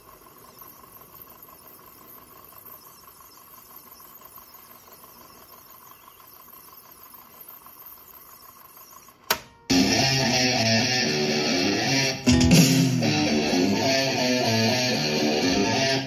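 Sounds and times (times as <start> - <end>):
thin steady tone: 0.0 - 9.3
tape hiss: 0.0 - 16.0.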